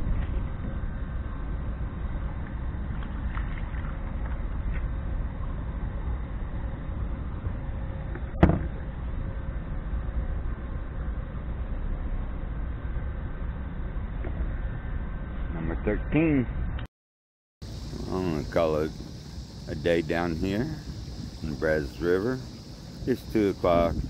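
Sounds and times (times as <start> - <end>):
wind on microphone: 0.0 - 15.4, 17.7 - 24.0
sharp knock: 8.4 - 8.7.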